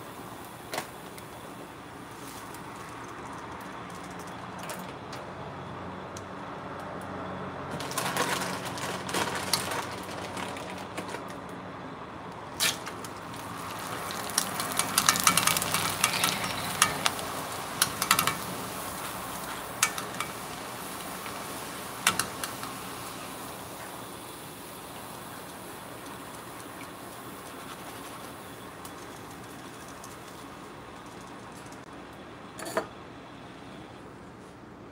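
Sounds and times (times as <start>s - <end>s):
snacks sizzling in hot oil: 12.6s - 31.5s.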